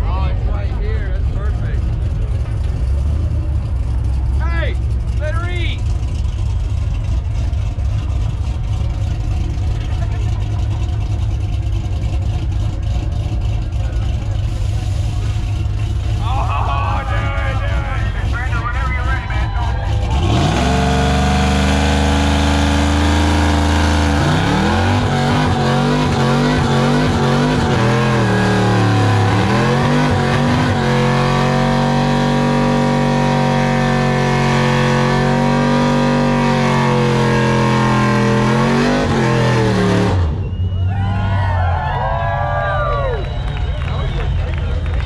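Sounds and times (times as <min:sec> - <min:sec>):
truck engine revving: 0:00.0 - 0:45.0.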